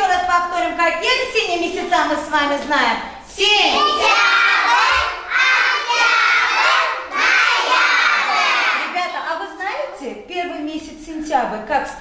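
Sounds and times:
children speaking in chorus: 3.4s - 9.0s.

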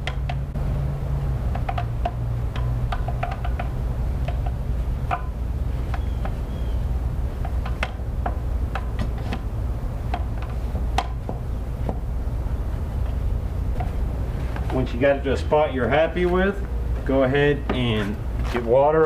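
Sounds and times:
brush knocking against spokes: 0.0s - 12.2s, 12.8s - 15.0s
steady low hum: 0.0s - 19.0s.

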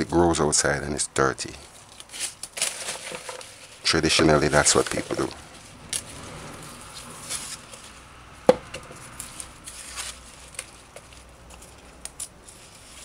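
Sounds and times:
leafy rustling: 1.5s - 13.0s
stems snapping: 8.7s - 12.4s.

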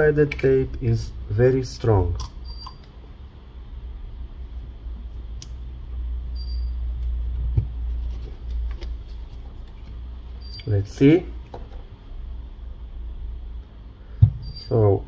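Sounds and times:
high squeak: 14.4s - 15.0s.

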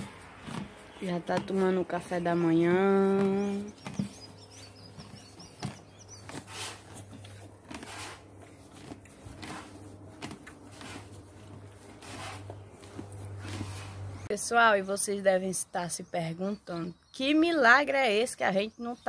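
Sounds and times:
horse munching feed: 0.0s - 14.2s.

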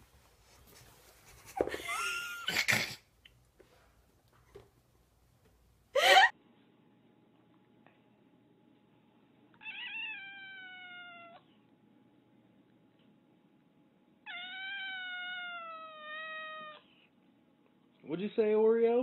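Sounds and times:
cat meowing: 9.6s - 11.5s, 14.2s - 16.9s.

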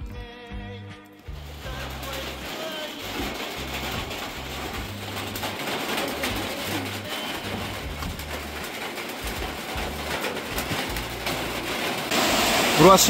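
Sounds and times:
rain falling: 1.3s - 13.0s.

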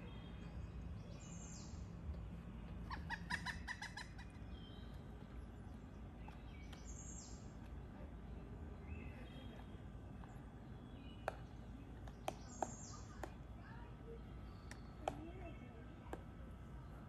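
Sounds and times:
woodpecker calling: 2.7s - 5.0s, 12.0s - 13.4s.

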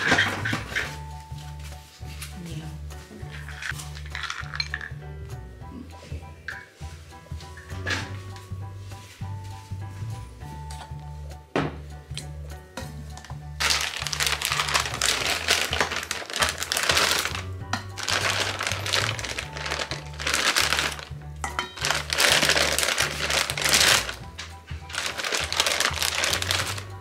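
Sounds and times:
background music with bass: 0.0s - 27.0s
plastic bag crinkling: 3.1s - 4.9s, 13.6s - 21.2s, 21.8s - 27.0s.

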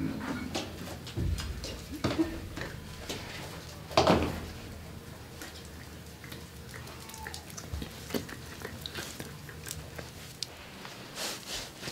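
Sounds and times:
footsteps on hard floor: 0.4s - 4.6s.

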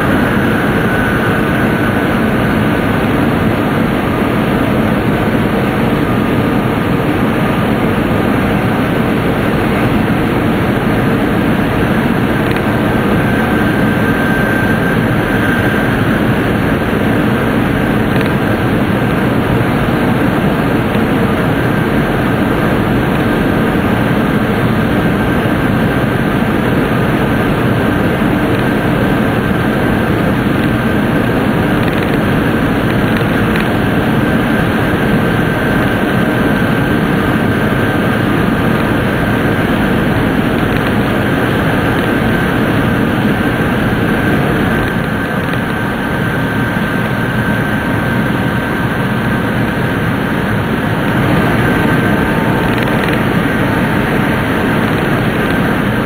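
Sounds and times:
faint high whine: 0.0s - 56.0s
train rumble and rush in tunnel: 0.0s - 56.0s.

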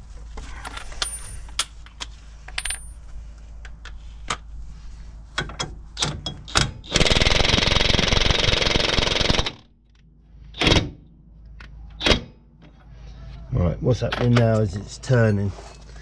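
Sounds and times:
metal clinks and knocks: 0.4s - 3.1s.

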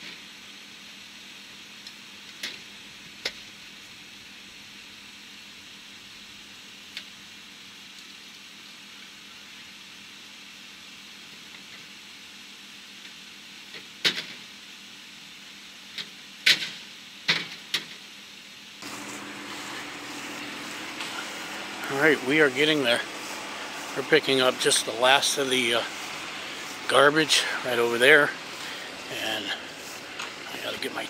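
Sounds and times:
steady high hiss: 0.0s - 31.0s
steady low hum: 18.8s - 31.0s.

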